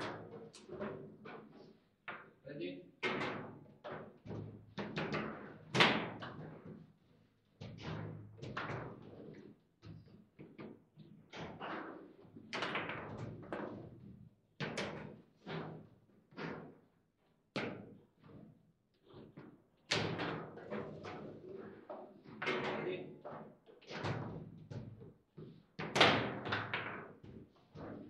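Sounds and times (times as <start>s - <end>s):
table football knocks and thuds: 3.0s - 6.9s, 7.6s - 11.6s, 19.9s - 28.0s.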